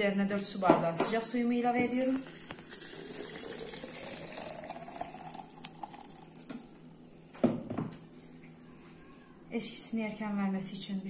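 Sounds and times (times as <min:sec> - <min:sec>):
water pouring into glass jug: 0:01.9 - 0:07.4.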